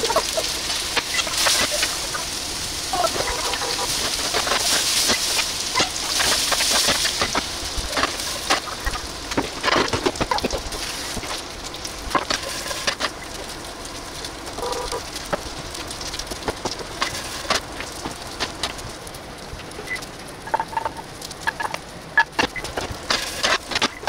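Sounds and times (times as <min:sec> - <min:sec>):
food sizzling in a frying pan: 0:00.0 - 0:18.8.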